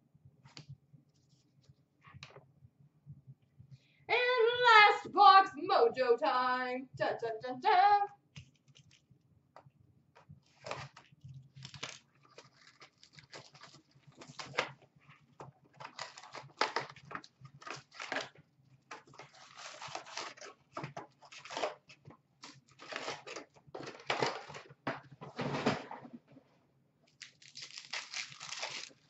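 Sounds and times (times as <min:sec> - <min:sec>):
packaging tearing and crinkling: 0:10.5 - 0:14.8, 0:15.8 - 0:24.7, 0:27.1 - 0:29.0.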